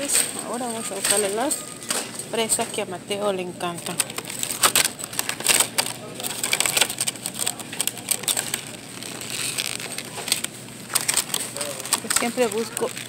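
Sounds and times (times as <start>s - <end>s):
plastic containers clicking and crackling: 3.6s - 13.0s.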